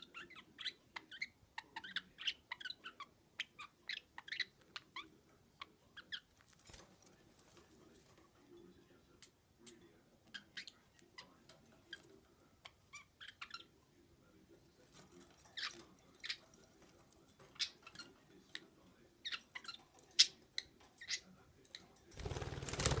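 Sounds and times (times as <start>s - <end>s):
budgies chirping: 0.0s - 6.7s, 10.3s - 13.8s, 14.9s - 21.9s.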